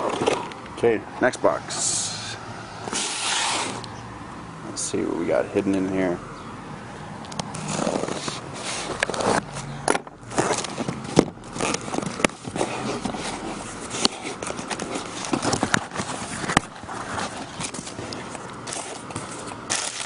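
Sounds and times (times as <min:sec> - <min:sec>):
packing tape tearing off cardboard: 0:02.9 - 0:03.9, 0:07.4 - 0:20.0.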